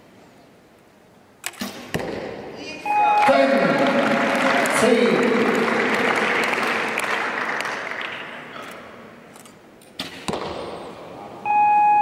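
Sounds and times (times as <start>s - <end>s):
arrow hitting target: 1.4s - 2.4s
crowd noise: 2.4s - 11.5s
steady electronic beep: 2.8s - 3.4s, 11.5s - 12.0s.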